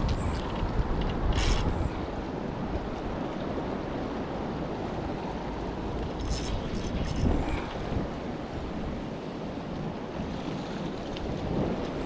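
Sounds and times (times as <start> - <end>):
river rushing: 0.0 - 12.0
wind buffeting microphone: 0.0 - 12.0.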